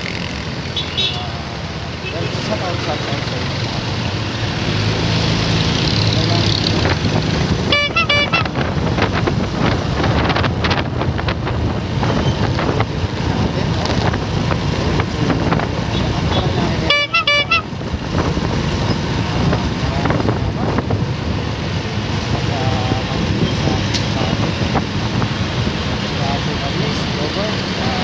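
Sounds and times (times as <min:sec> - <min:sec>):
motorcycle engine: 0:00.0 - 0:28.0
road noise: 0:00.0 - 0:28.0
horn short beeps: 0:07.7 - 0:08.5, 0:16.3 - 0:17.7.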